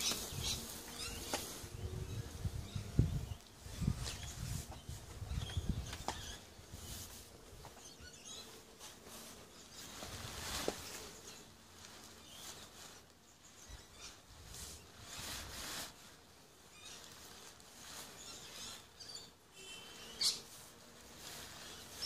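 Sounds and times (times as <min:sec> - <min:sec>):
tent fabric rustling: 0:00.0 - 0:22.0.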